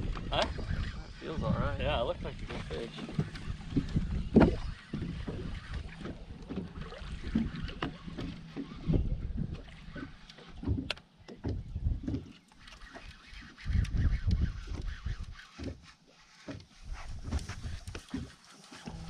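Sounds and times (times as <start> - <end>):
wind rumbling on microphone: 0.0 - 12.3, 13.5 - 15.8, 16.8 - 18.1
water around boat: 0.0 - 19.0
sharp knocks and clicks: 10.3 - 12.4.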